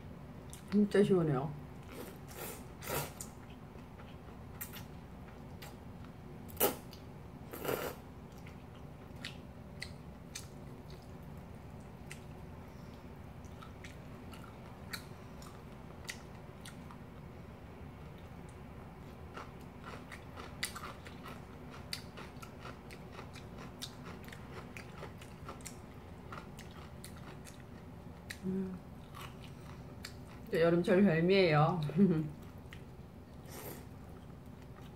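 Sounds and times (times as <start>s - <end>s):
steady low hum: 0.0s - 34.9s
person chewing noodles: 1.8s - 5.8s, 6.5s - 17.0s, 19.0s - 30.5s.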